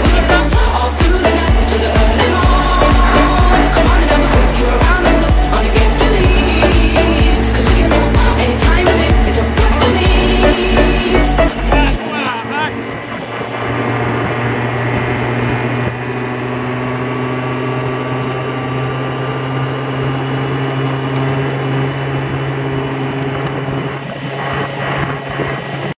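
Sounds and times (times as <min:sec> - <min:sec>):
moped engine droning: 0:00.0 - 0:26.0.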